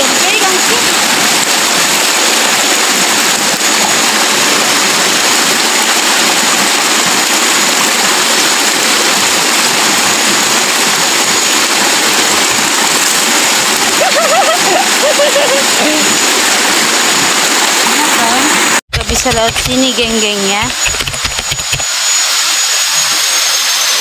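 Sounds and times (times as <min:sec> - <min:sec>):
water pouring onto rocks: 0:00.0 - 0:18.5.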